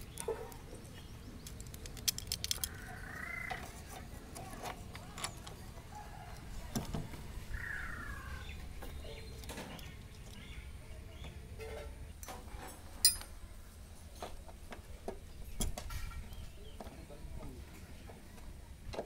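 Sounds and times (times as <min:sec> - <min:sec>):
metal clinks and taps: 0:13.0 - 0:13.3.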